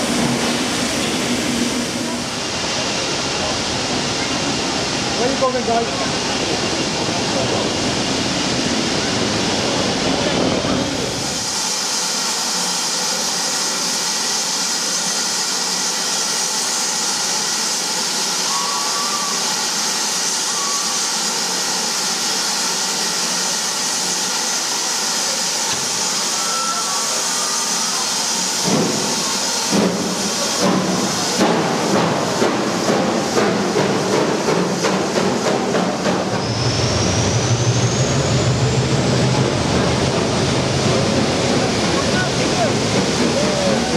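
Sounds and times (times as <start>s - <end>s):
steam locomotive hissing: 0.0s - 43.9s.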